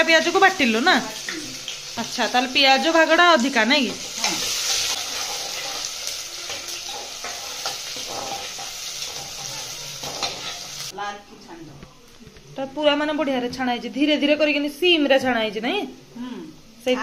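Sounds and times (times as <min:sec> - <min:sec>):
onions sizzling in hot oil: 0:00.0 - 0:11.0
metal ladle scraping pot: 0:06.5 - 0:10.9.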